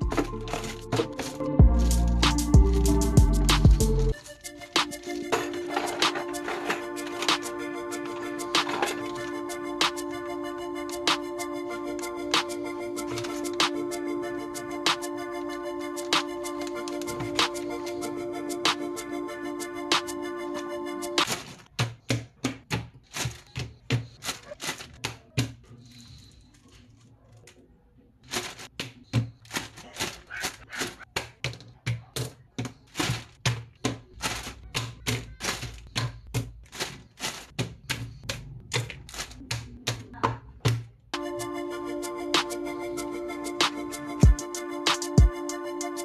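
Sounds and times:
plastic parts clicking and tapping: 0:04.8 - 0:07.5, 0:21.2 - 0:25.7, 0:28.2 - 0:41.1.

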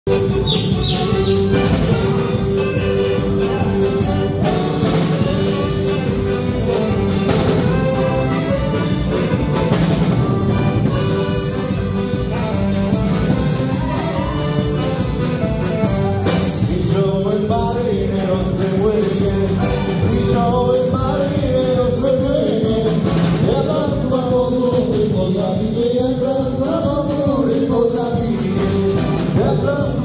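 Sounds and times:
saxophone: 0:00.1 - 0:16.7
accordion: 0:00.1 - 0:30.0
acoustic guitar: 0:00.1 - 0:30.0
drum kit dance beat: 0:00.1 - 0:30.0.

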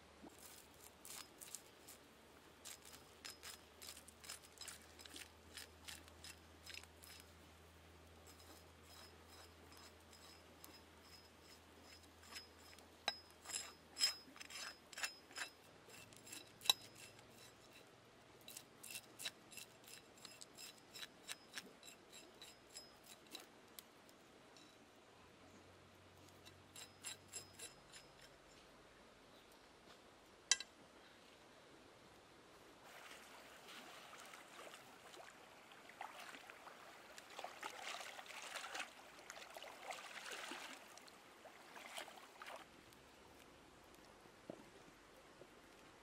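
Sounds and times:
knife scraping scales on stone: 0:00.4 - 0:02.0, 0:02.6 - 0:07.3, 0:08.2 - 0:17.9, 0:18.5 - 0:23.5, 0:26.3 - 0:28.6.

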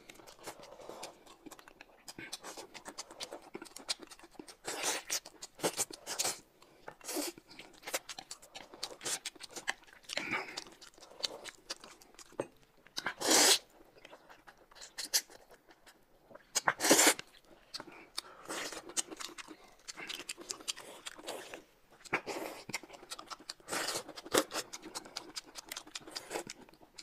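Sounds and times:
chewing: 0:00.0 - 0:27.0
slurping noodles: 0:13.0 - 0:13.7, 0:16.6 - 0:17.2.

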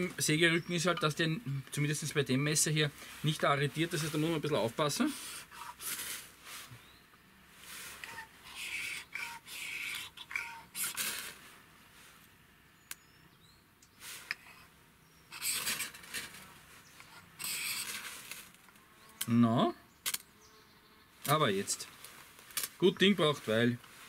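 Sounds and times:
ferro rod rasping scrapes: 0:15.3 - 0:18.6.

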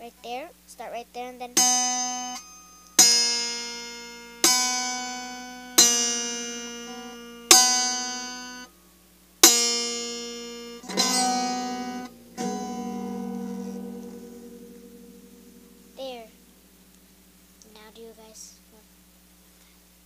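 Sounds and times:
acoustic guitar strummed chords: 0:01.6 - 0:08.7, 0:09.4 - 0:17.4.

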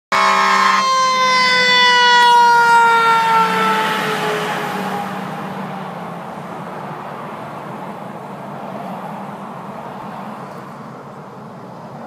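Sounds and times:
multi-tone horn blast: 0:00.1 - 0:01.8
fire engine siren winding down: 0:00.1 - 0:05.3.

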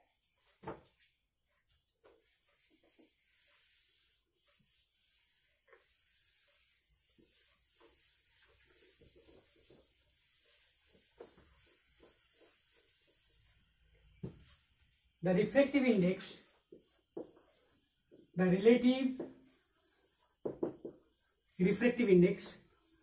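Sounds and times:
eraser swishing on whiteboard: 0:00.3 - 0:13.6, 0:19.2 - 0:23.0.

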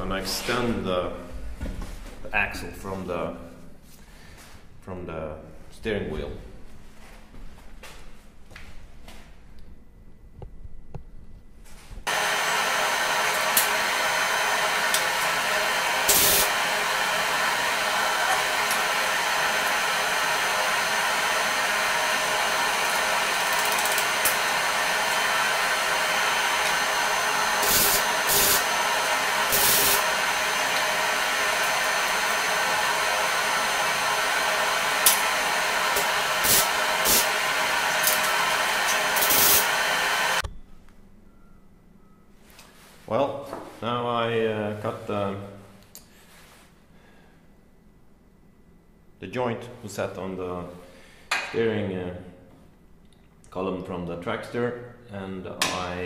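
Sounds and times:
arc welding buzz: 0:12.1 - 0:40.5.

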